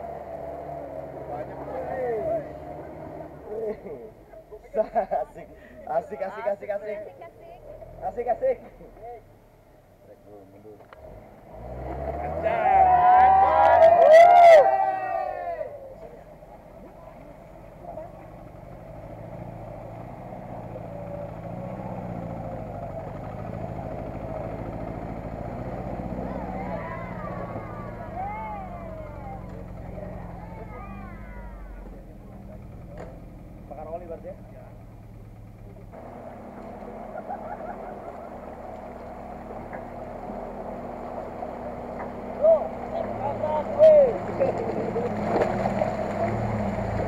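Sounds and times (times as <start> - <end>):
vehicle engine driving through mud: 0.0 - 9.3, 10.5 - 47.0.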